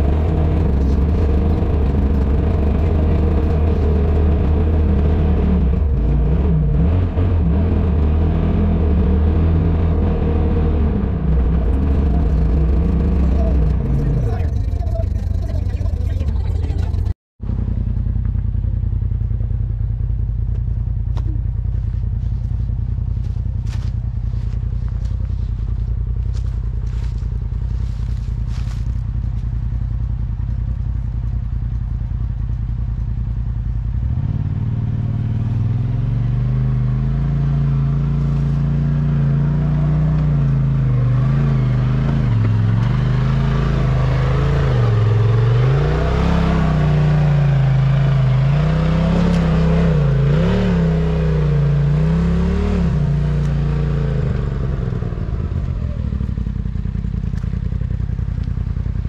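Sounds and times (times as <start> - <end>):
vehicle engine revving: 0.0 - 59.0.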